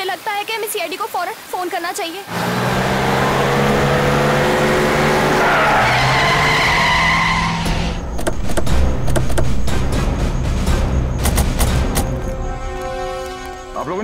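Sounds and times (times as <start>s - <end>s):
tyres squealing: 2.3s - 8.4s
car driving up fast: 2.3s - 8.6s
dramatic music with drum hits: 6.6s - 14.0s.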